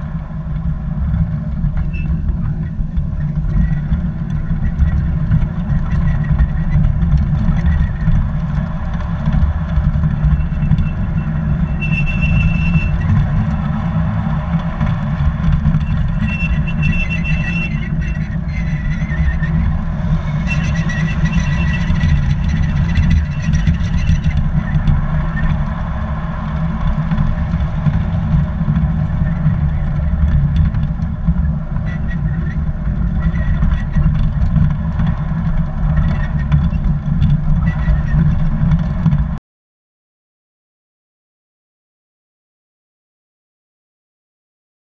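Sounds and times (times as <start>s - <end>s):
high-pitched wheel squeals: 1.7s - 30.3s, 31.8s - 38.5s.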